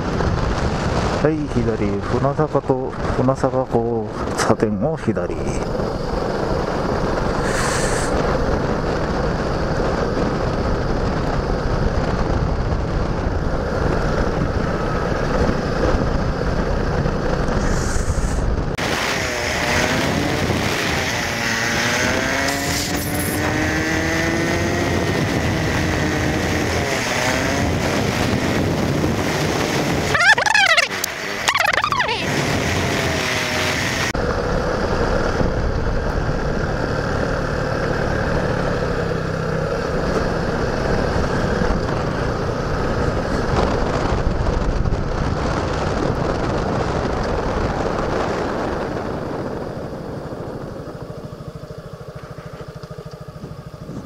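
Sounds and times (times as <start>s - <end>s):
motorcycle running: 0.0s - 54.0s
wind rushing over microphone: 0.0s - 54.0s
fast sweeping chirps: 30.1s - 32.3s.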